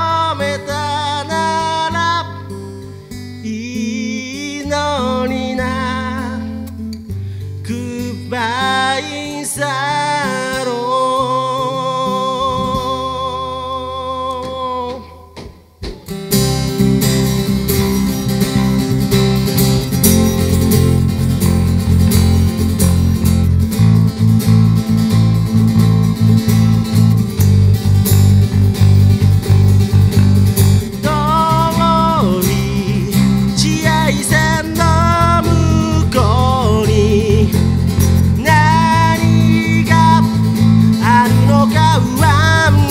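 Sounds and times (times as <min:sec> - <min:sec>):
man singing: 0:00.0 - 0:06.8, 0:07.6 - 0:15.5, 0:30.9 - 0:42.9
bass guitar: 0:00.0 - 0:08.8, 0:10.8 - 0:42.9
acoustic guitar: 0:00.0 - 0:42.9
cajon beat: 0:12.2 - 0:42.9
band playing with steady beat: 0:14.4 - 0:31.4.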